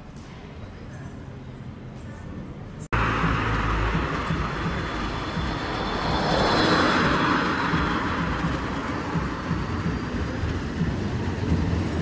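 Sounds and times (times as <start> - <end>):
faint tram whine: 0.4 - 12.0
street traffic rushing: 2.5 - 12.0.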